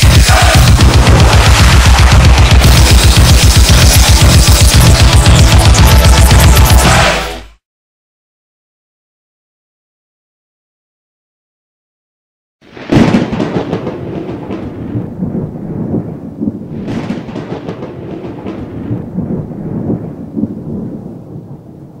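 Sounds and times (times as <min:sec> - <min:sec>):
thunder claps and rumble: 0:00.0 - 0:05.8, 0:12.7 - 0:22.0.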